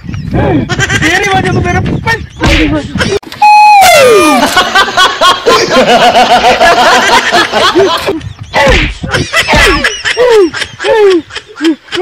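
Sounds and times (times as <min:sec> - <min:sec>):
slaps and thuds: 0:02.4 - 0:02.8, 0:08.6 - 0:09.8
men shouting and crying out: 0:03.4 - 0:04.6.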